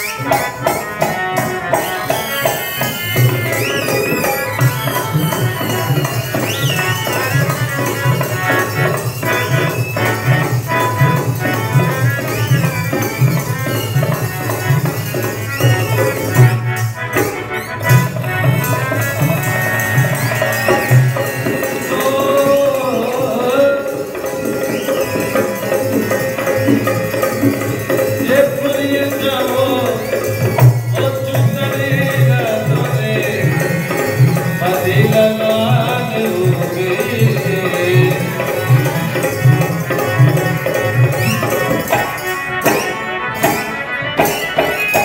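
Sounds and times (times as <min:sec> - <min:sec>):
wavering folk melody: 0:00.0 - 0:33.2
hand drum beating: 0:00.0 - 0:45.0.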